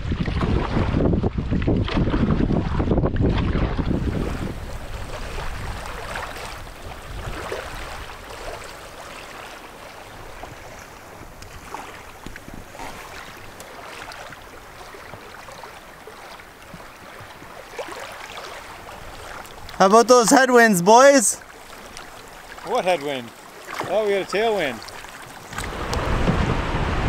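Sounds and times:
wind rumbling on microphone: 0.0 - 9.2, 10.0 - 15.4, 24.3 - 27.0
water splashing around canoe: 0.0 - 27.0.

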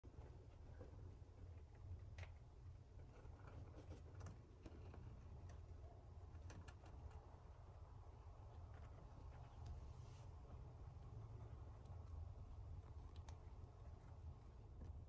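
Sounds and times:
mouse nibbling clicks: 11.6 - 14.1.

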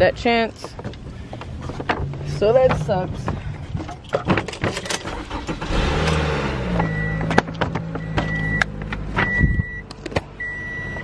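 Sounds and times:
car engine starting and idling: 0.1 - 11.0
dashboard warning chime beeping: 6.7 - 11.0.

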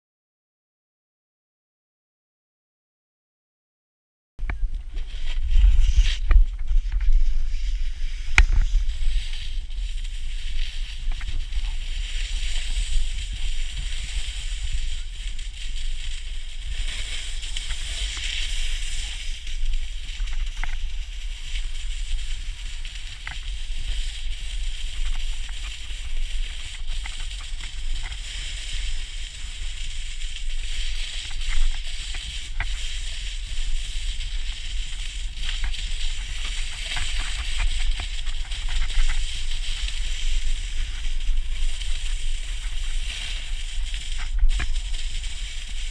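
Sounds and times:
low rumble: 4.4 - 15.3
snowboard scraping over snow: 4.8 - 45.9.

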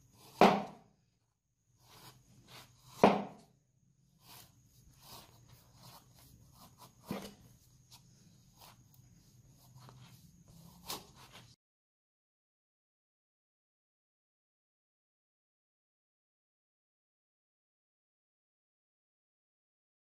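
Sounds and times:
knife knocking on table: 3.0 - 3.4
knife cutting paper: 4.2 - 11.6.

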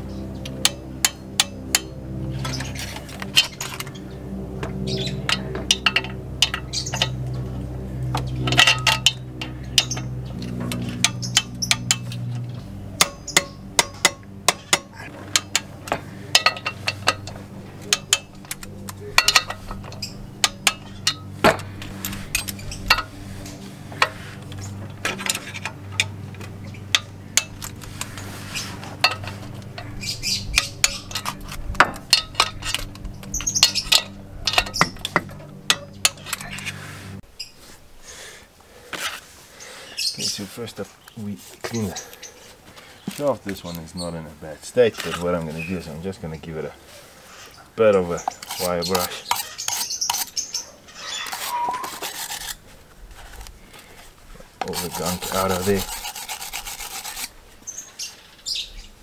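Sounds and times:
torque wrench clicking: 13.0 - 23.1.

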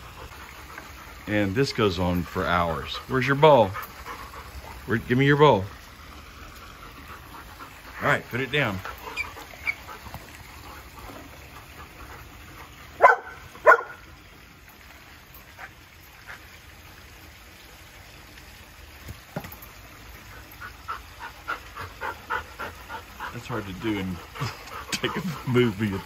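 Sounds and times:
dog barking: 13.0 - 14.0.

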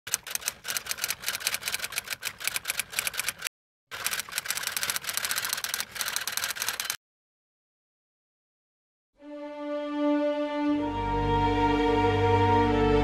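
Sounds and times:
typewriter keys clacking: 0.1 - 7.0.

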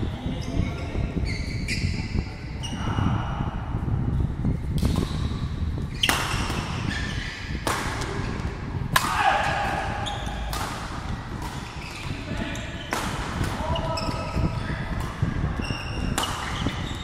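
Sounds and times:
shoes squeaking on court floor: 0.2 - 2.8, 4.9 - 8.6, 9.6 - 17.0
racket hitting shuttlecock: 6.0 - 17.0.

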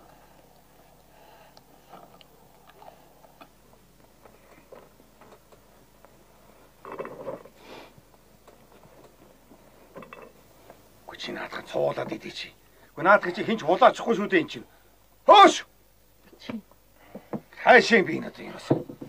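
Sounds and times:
chewing with crunching clicks: 0.1 - 6.2.

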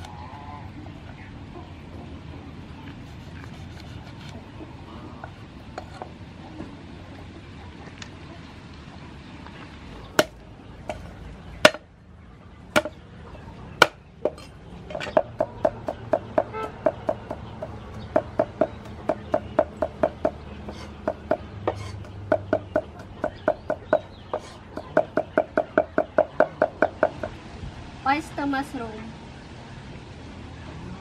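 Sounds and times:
knife chopping on wooden board: 15.2 - 26.9.

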